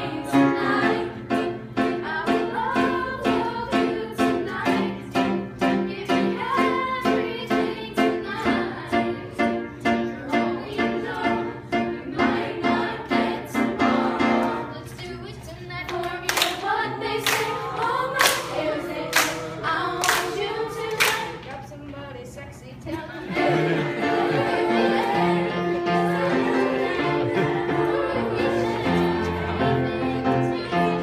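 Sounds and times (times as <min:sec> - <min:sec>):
group singing: 0:00.0 - 0:14.9, 0:16.0 - 0:21.4, 0:23.0 - 0:31.0.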